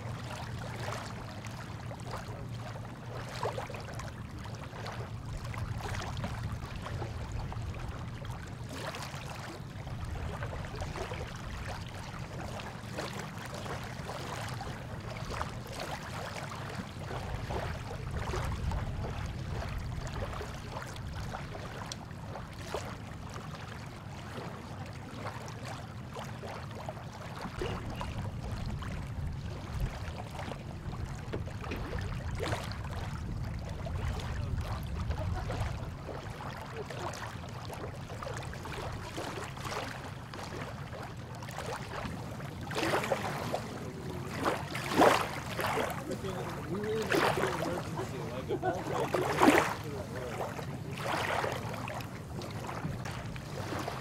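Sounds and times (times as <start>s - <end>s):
boat engines idling: 43.5s - 51.0s.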